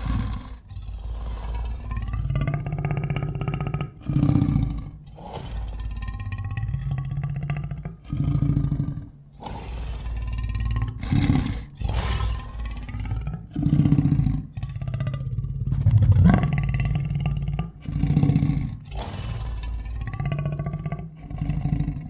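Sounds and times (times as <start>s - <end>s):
creature roars and growls: 15.6s - 21.8s.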